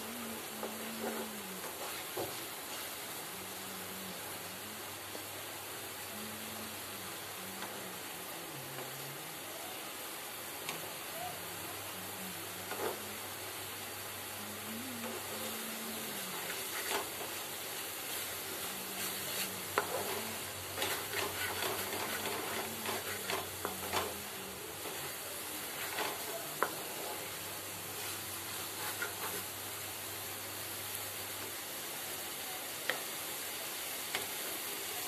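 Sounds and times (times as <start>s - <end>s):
noodles sizzling in oil: 0.0s - 35.0s
spatula scraping and knocking pan: 16.3s - 17.5s, 19.0s - 27.2s.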